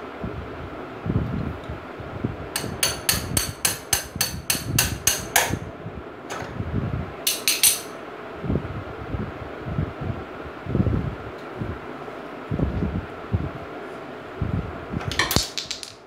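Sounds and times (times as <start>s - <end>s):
metal bar tapping metal: 2.6s - 5.6s, 7.3s - 8.0s.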